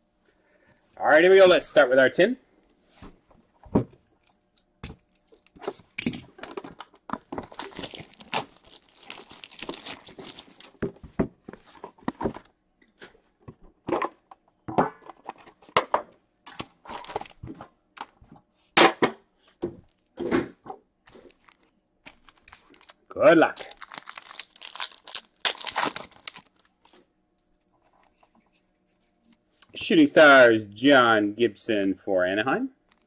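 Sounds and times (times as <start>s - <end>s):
plastic wrap crinkling and tearing: 6.3s - 10.9s, 16.8s - 17.4s, 21.1s - 27.0s.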